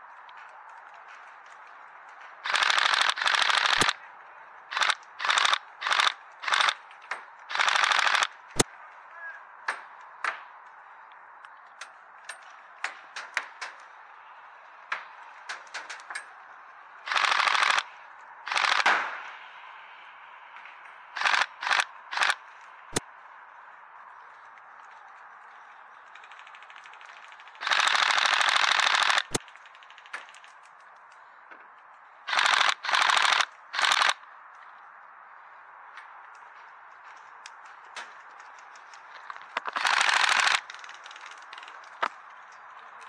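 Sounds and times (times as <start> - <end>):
airsoft rifle firing bursts: 2.4 - 4.0, 4.7 - 6.8, 7.5 - 8.4, 17.1 - 17.9, 18.5 - 18.9, 21.2 - 22.4, 26.8 - 30.4, 32.3 - 34.2, 39.7 - 40.9.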